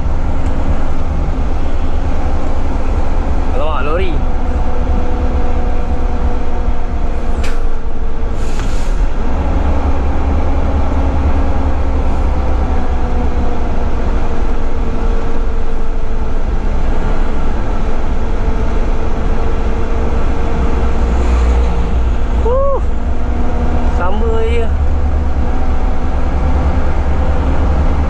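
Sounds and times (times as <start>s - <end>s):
diesel truck engine droning: 0.0s - 28.0s
brief air hisses: 8.4s - 9.0s.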